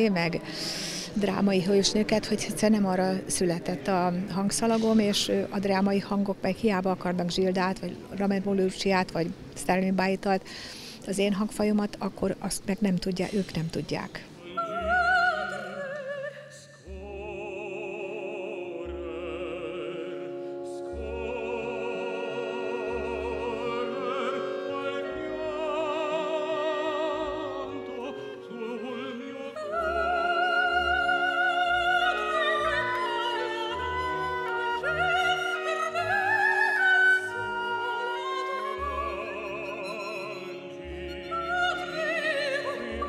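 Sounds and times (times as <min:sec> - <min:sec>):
woman singing operatically: 0:14.4 - 0:18.1, 0:20.8 - 0:43.0
instrumental accompaniment: 0:18.8 - 0:43.0.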